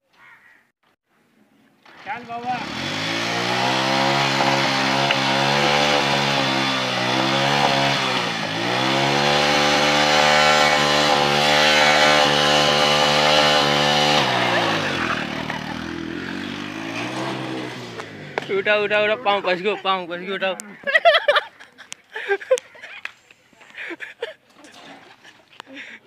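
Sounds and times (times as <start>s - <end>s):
motorcycle engine revving: 1.8s - 19.3s.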